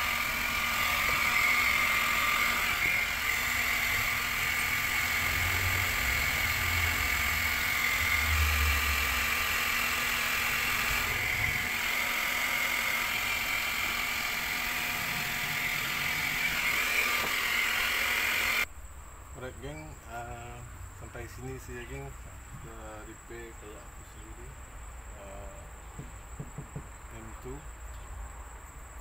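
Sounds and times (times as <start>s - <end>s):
hot-air welding gun whirring: 0.0s - 18.7s.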